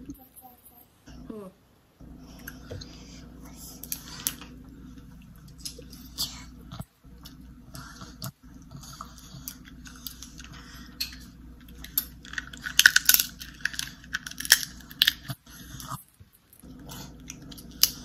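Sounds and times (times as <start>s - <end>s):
crunching and chewing seafood: 3.8s - 18.0s.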